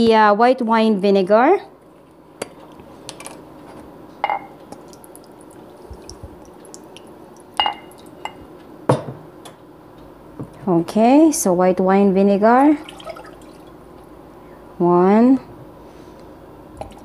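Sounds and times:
low steady hum: 0:00.0 - 0:17.0
glass and metal kitchenware clinking: 0:04.2 - 0:04.6, 0:07.6 - 0:09.2.

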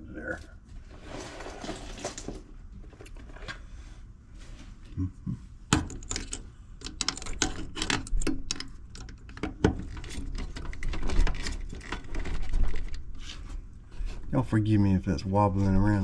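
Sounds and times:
metallic clicks and rattles: 0:05.8 - 0:13.0.

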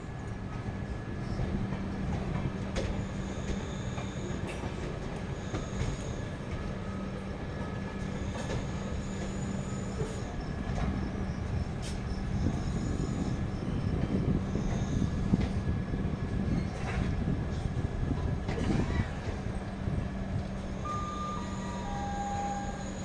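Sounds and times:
train rail rumble: 0:00.0 - 0:23.0
high wheel squeal: 0:05.4 - 0:15.2, 0:20.7 - 0:23.0.

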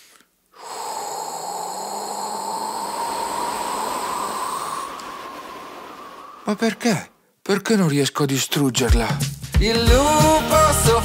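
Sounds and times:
cartoon blowing whoosh: 0:00.6 - 0:07.2.

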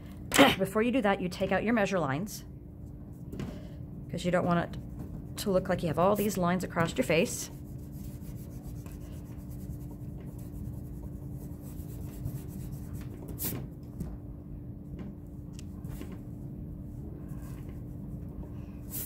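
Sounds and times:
eraser rubbing on paper: 0:07.1 - 0:13.6.

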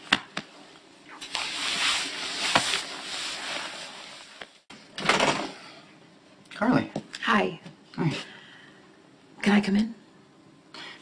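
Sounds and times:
clothing rustling: 0:01.1 - 0:04.7.

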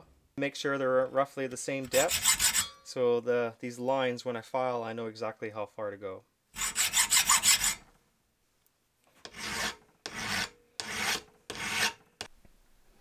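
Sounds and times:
file rasping on steel: 0:01.9 - 0:02.8, 0:06.6 - 0:07.8, 0:09.2 - 0:12.3
hacksaw cutting steel: 0:01.9 - 0:02.8, 0:06.6 - 0:07.8, 0:09.2 - 0:12.1.

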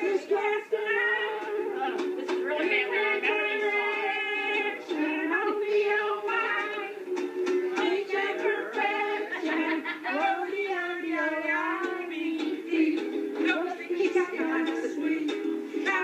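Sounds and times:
people singing together: 0:00.0 - 0:16.0
ukulele: 0:00.0 - 0:16.0.

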